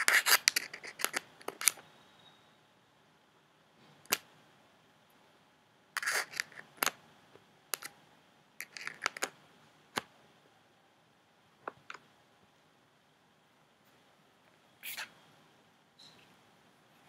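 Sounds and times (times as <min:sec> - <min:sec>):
clicks and taps of small objects: 0:06.0 - 0:08.0, 0:08.6 - 0:10.1.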